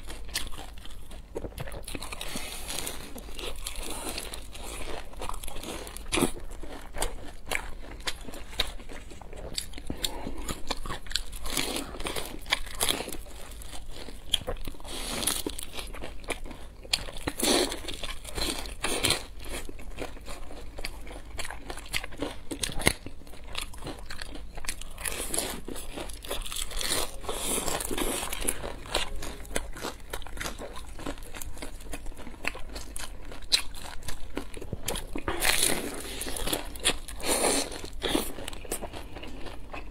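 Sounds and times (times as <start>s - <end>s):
chewing: 0.0s - 39.9s
crunching fried dumplings: 0.0s - 39.9s.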